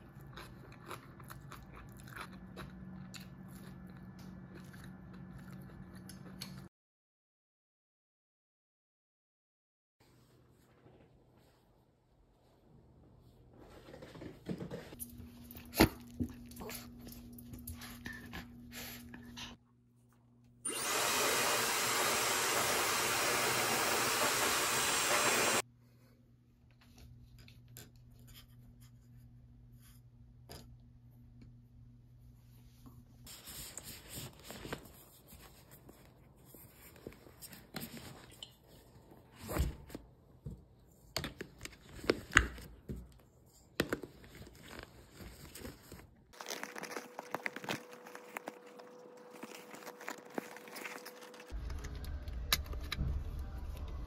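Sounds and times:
objects being packed into bag: 0:43.8 - 0:51.6.

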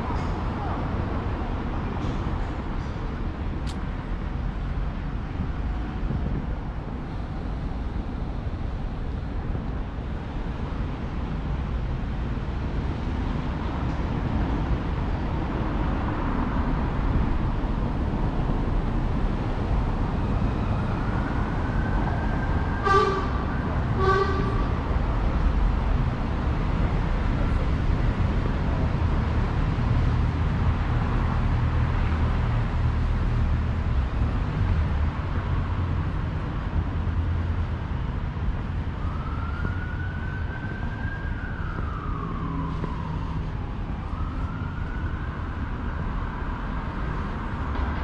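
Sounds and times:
road traffic rumble: 0:00.0 - 0:48.0
car horn toots: 0:22.8 - 0:23.4, 0:24.0 - 0:24.7.

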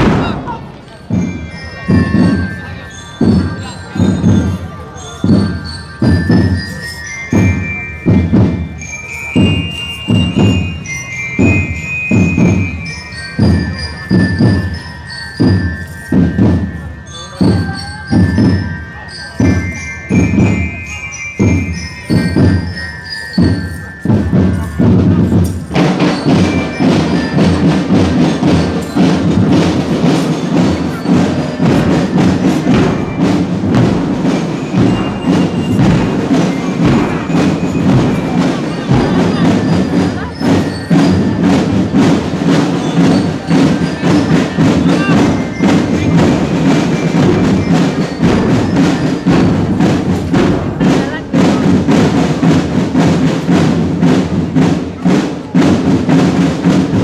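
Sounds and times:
heavy bass drum beats: 0:00.0 - 0:04.6, 0:23.4 - 0:57.0
high bell-like melody: 0:00.0 - 0:53.5
marching drum band playing: 0:00.0 - 0:57.0.

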